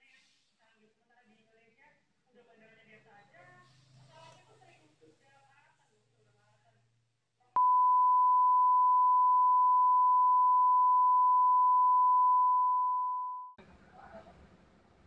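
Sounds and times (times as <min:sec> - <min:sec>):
high test tone beep: 0:07.6 - 0:13.6.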